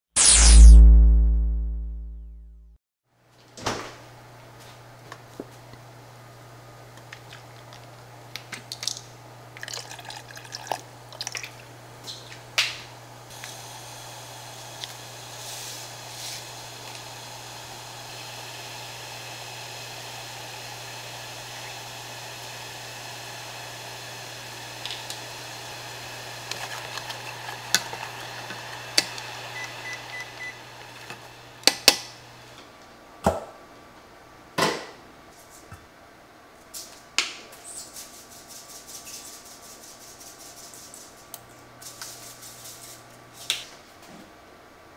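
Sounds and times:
cooktop low hum: 3.2s - 44.9s
liquid pouring into saucepan: 9.6s - 11.6s.

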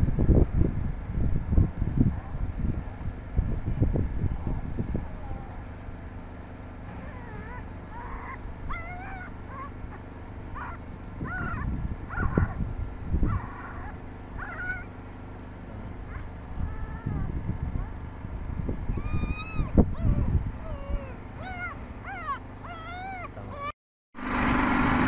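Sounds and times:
wind rumbling on microphone: 0.0s - 23.3s
puppy whimpering: 6.9s - 10.0s, 10.6s - 12.6s, 13.2s - 14.9s, 15.8s - 18.0s, 18.9s - 23.8s.

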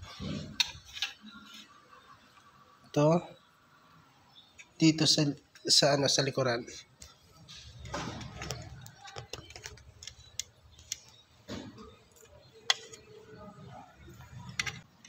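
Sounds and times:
plastic clicks and taps: 8.3s - 11.2s.

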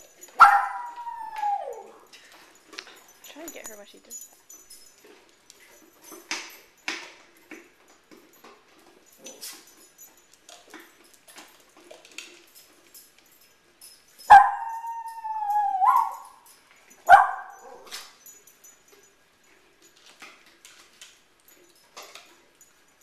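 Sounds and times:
small dog whining: 0.4s - 2.1s, 14.3s - 16.4s.

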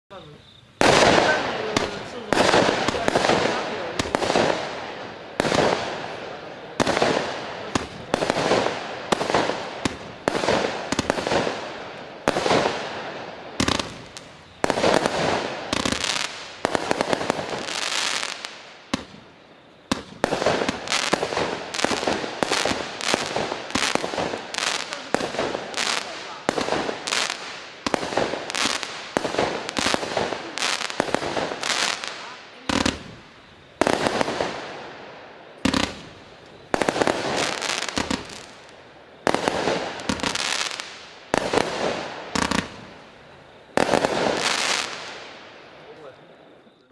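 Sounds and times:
fireworks bangs with crackle: 0.1s - 46.2s.

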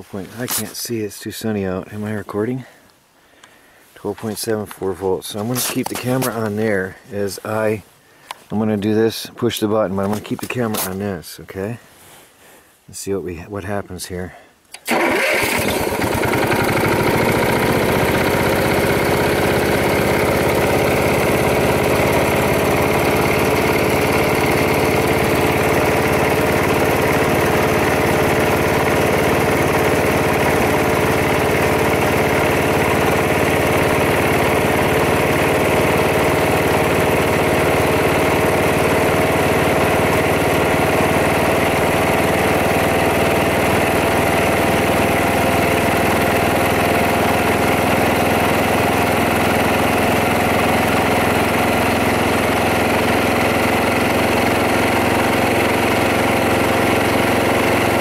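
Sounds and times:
gas engine running: 14.8s - 58.0s.

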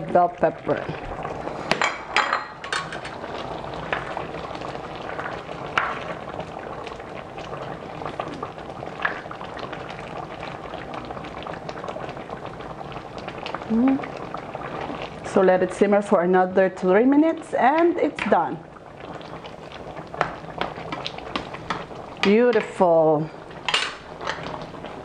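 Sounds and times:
stew bubbling in a pan: 0.0s - 25.0s.

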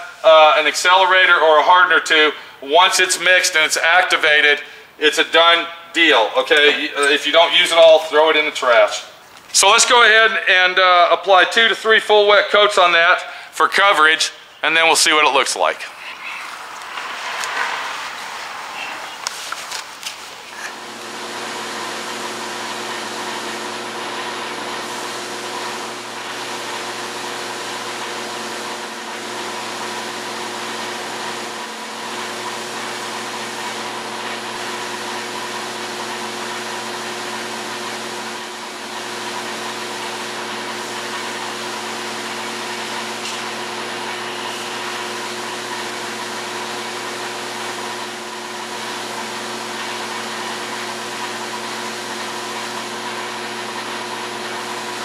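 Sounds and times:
paint spray gun hissing: 16.6s - 53.8s
motor hum: 20.4s - 55.0s.

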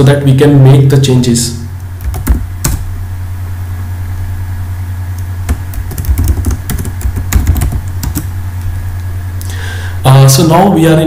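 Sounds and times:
steady low hum: 0.0s - 11.0s
keyboard keys clicking: 2.0s - 2.8s, 5.2s - 8.7s.

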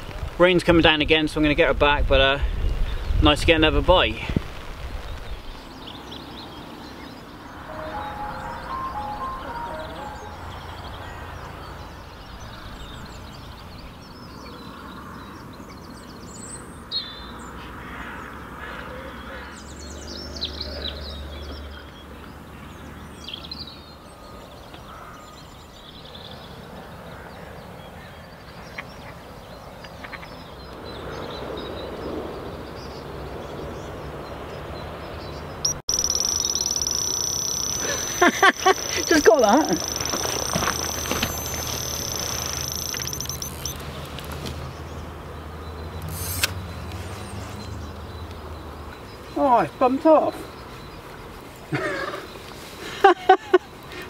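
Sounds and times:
birdsong: 5.0s - 54.0s
bite alarm high tone: 7.6s - 11.3s, 35.7s - 43.8s.

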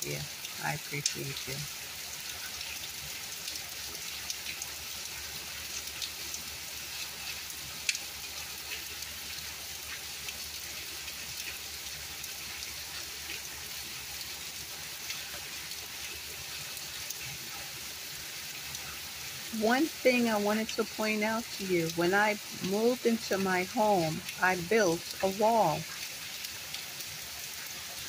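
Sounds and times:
rain on brick patio: 0.0s - 28.0s.

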